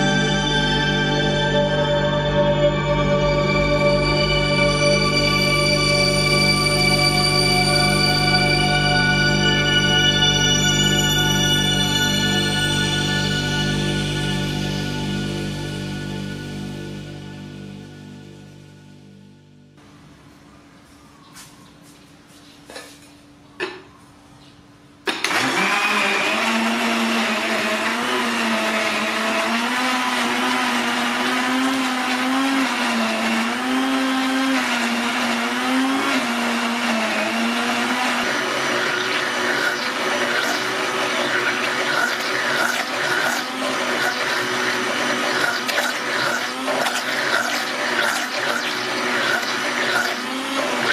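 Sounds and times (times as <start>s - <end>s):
blender running: 25.1s - 50.9s.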